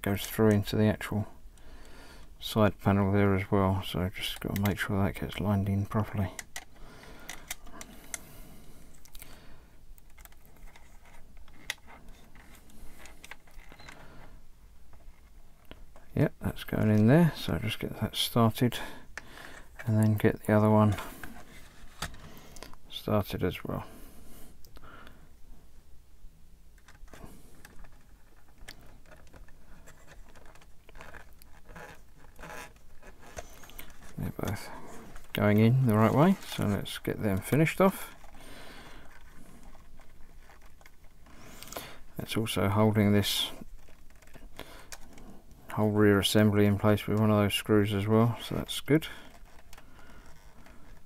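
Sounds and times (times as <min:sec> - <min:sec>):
plastic parts clicking and tapping: 0:04.2 - 0:17.1, 0:26.8 - 0:41.8, 0:43.2 - 0:45.7, 0:49.0 - 0:51.0.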